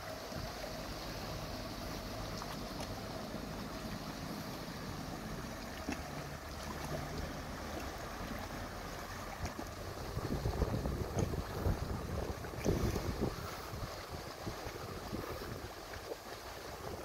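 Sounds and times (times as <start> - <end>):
motorboat engine hum: 0.0 - 17.0
river water wash: 0.0 - 17.0
wind buffeting microphone: 9.4 - 17.0.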